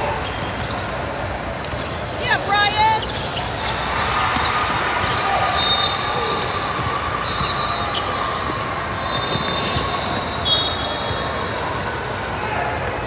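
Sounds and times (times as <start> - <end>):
gym hall noise: 0.0 - 13.0
basketball bouncing on court: 0.2 - 2.0, 3.0 - 5.4, 6.2 - 10.4.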